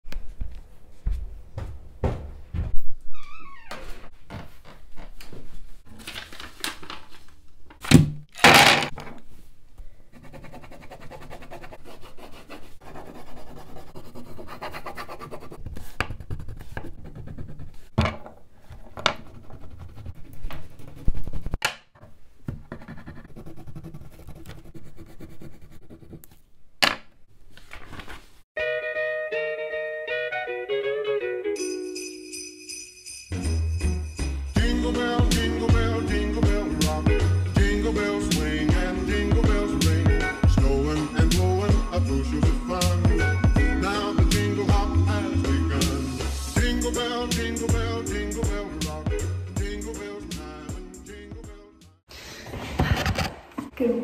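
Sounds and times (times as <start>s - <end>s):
crayon scribbling on paper: 10.1s - 17.9s, 19.2s - 21.6s, 22.7s - 26.3s.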